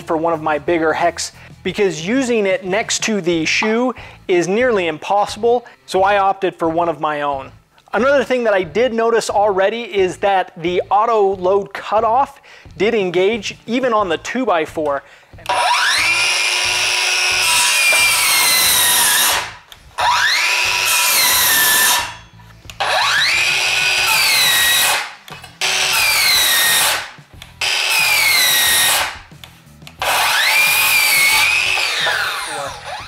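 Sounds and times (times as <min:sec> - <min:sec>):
saw motor winding down: 0:15.4 - 0:29.2, 0:30.0 - 0:33.0
circular saw cutting wood: 0:15.4 - 0:29.4, 0:30.0 - 0:33.0.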